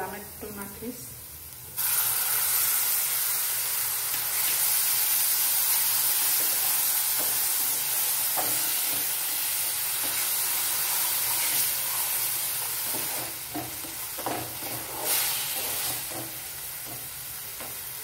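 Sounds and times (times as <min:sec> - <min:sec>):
food sizzling in frying pan: 0:00.0 - 0:18.0
spatula scraping pan: 0:10.0 - 0:17.0.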